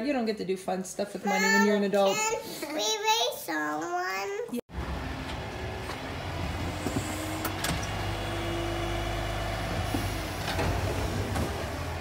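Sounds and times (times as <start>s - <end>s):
garbage truck engine running: 4.7s - 12.0s.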